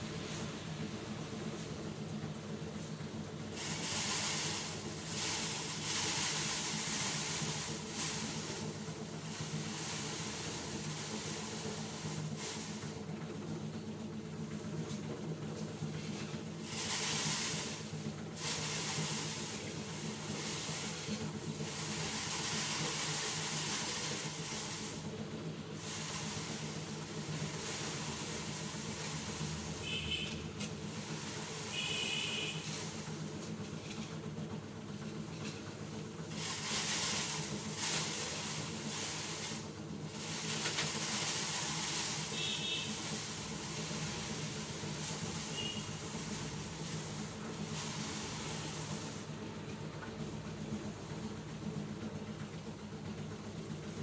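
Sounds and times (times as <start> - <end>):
rake scraping over ground: 3.6 - 12.8, 15.6 - 25.0, 25.8 - 34.2, 36.3 - 49.3.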